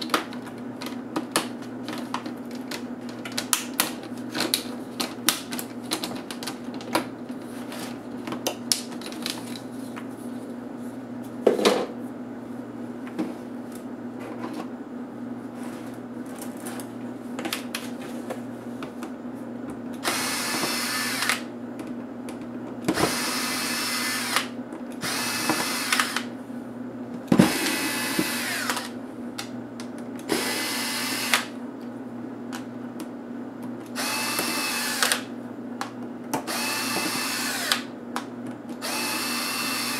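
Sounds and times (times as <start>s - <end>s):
power screwdriver whirring: 20.0s - 21.5s, 23.0s - 26.3s, 27.4s - 28.9s, 30.3s - 31.5s, 34.0s - 35.3s, 36.5s - 37.9s, 38.8s - 39.9s.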